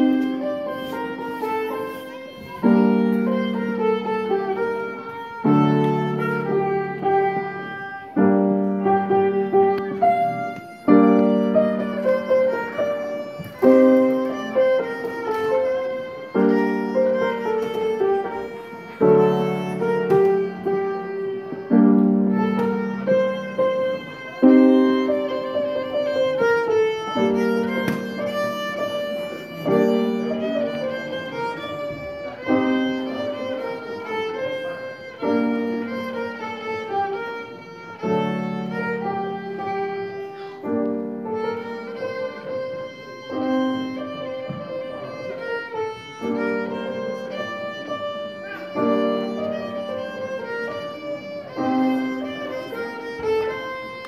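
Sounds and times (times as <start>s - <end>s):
piano accompaniment: 0.0s - 54.0s
violin melody: 0.0s - 54.0s.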